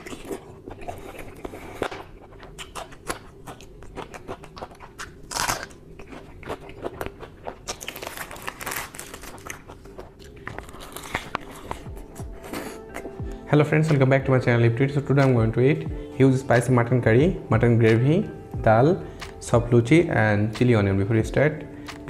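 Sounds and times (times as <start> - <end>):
chewing with crisp crunches: 0.0 - 13.5.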